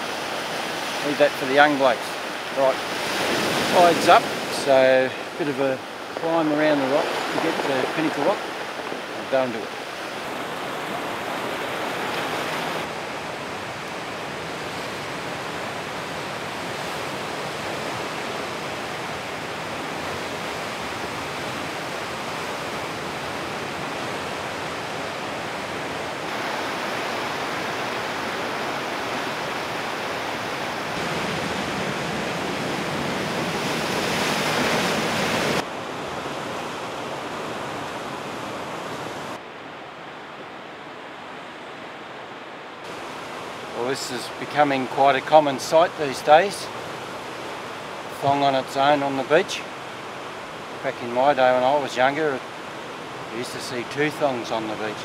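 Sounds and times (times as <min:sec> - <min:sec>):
surf washing against rocky shore: 0:00.0 - 0:39.4, 0:42.8 - 0:55.0.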